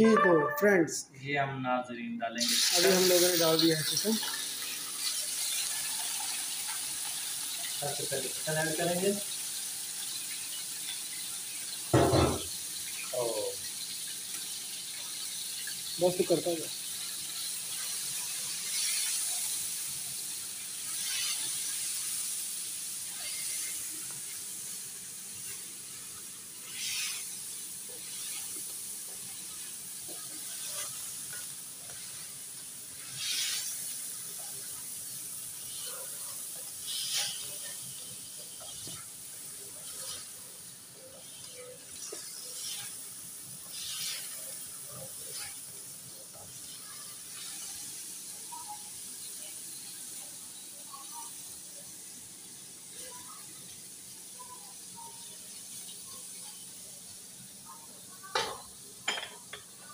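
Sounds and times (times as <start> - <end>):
chicken sizzling in a wok: 2.4 - 59.9
spatula scraping a pan: 36.8 - 37.8, 43.7 - 44.6, 45.2 - 45.6.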